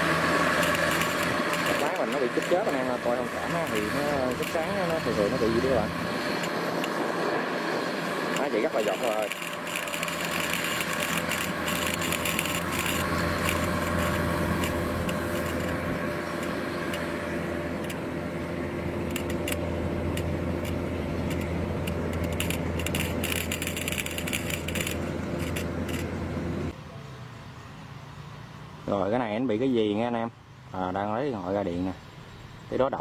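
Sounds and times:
machinery rattling and clicking: 0.0 - 7.1, 8.2 - 18.1, 18.9 - 26.7
engine drone: 0.0 - 33.0.

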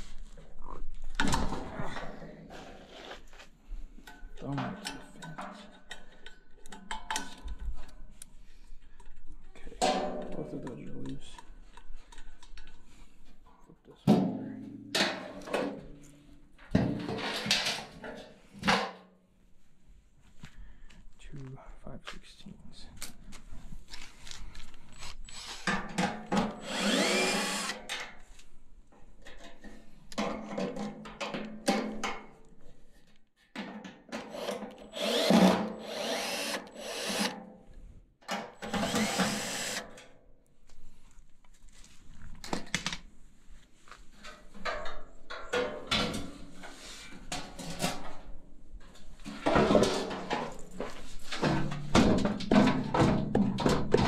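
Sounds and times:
cordless driver running: 26.4 - 27.8, 34.3 - 37.3, 38.6 - 39.8.

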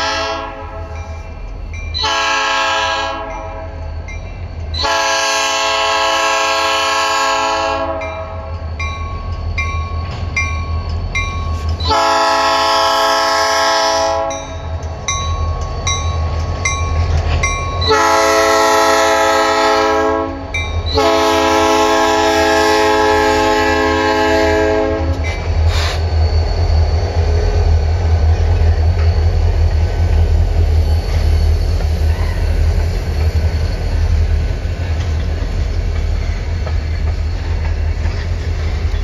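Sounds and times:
locomotive air horn: 0.0 - 1.0, 2.0 - 3.8, 4.8 - 8.5, 11.8 - 14.5, 17.8 - 25.9
freight train rumbling past: 0.0 - 39.0.

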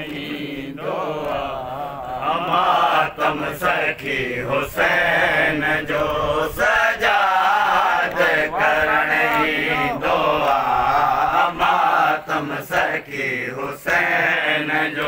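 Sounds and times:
men chanting a lament: 0.0 - 15.0
hands slapping chest: 8.0 - 9.5.

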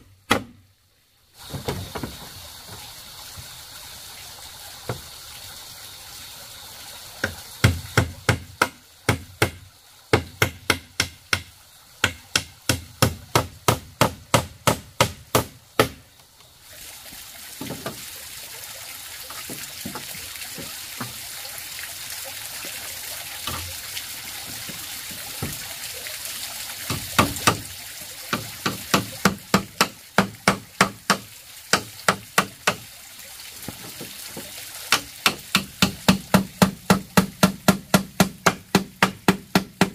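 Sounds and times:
steady hiss: 0.0 - 39.9
hammer striking nails into wood: 34.9 - 39.9.

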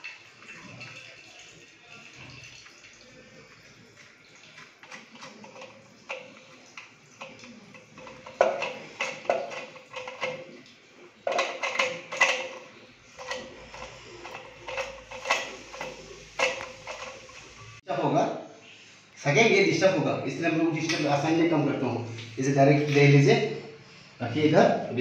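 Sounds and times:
plastic fittings clicking and knocking: 4.6 - 17.6.

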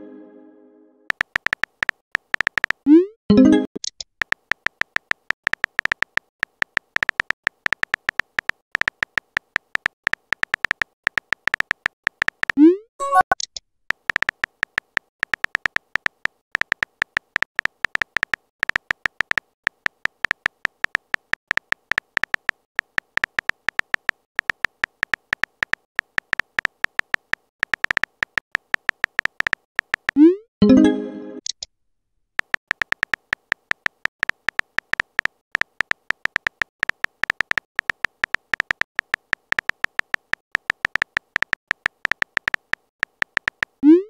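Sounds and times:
electronic keystroke beep-clicks: 10.1 - 13.5.

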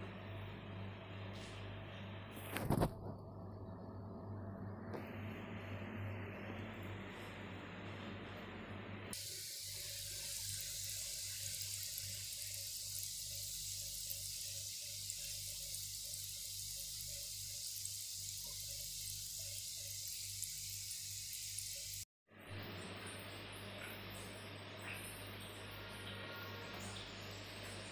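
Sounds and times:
low hum: 0.0 - 22.0
dough sizzling in hot oil: 9.1 - 23.7.

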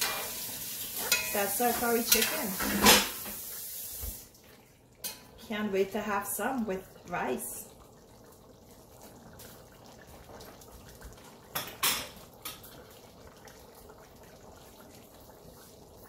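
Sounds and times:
faint steady hiss: 0.0 - 8.0
utensil clinking on metal pot: 1.1 - 3.0.

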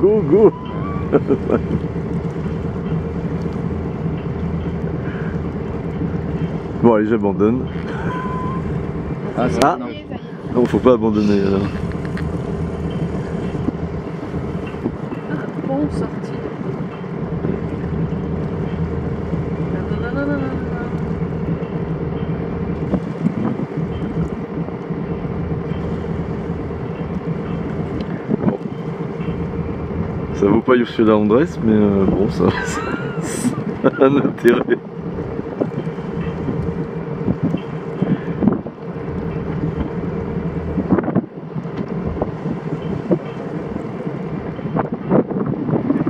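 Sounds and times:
diesel engine humming: 0.0 - 46.0
wind noise on microphone: 11.4 - 30.4, 31.7 - 46.0.

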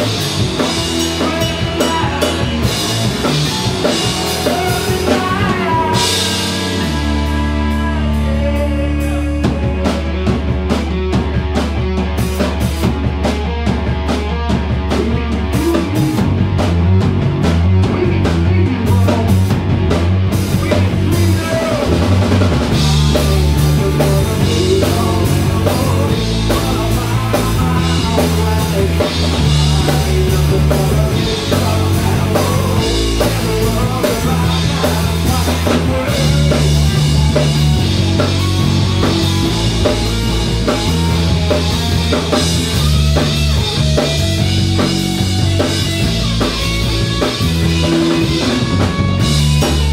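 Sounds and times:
drums hitting: 0.0 - 8.0, 9.5 - 49.9
bass line: 0.0 - 49.9
rock band playing live: 0.0 - 49.9.

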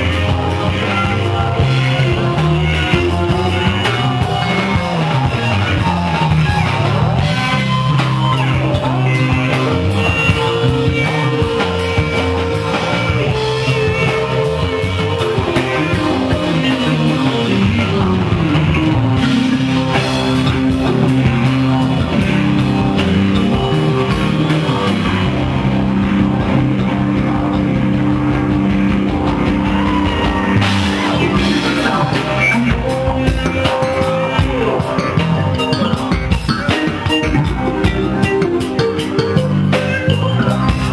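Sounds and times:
live rock band playing: 0.0 - 40.9.

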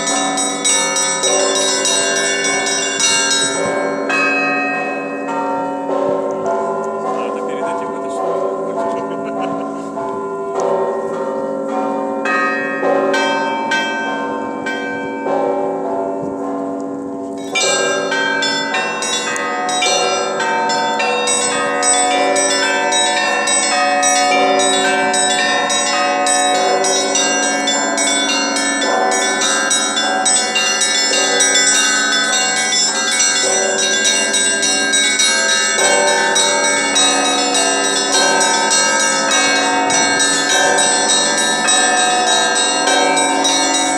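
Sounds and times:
large bells humming: 0.0 - 43.9
small bells ringing patterns: 0.0 - 43.9.

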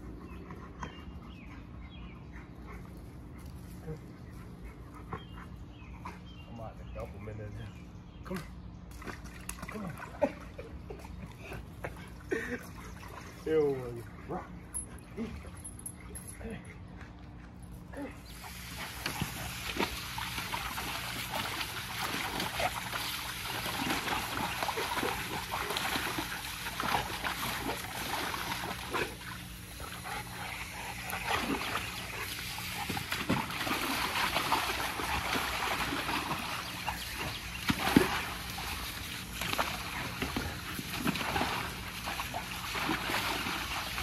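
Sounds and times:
hose spraying water into pool: 18.2 - 44.0
dog splashing through water: 18.3 - 44.0.

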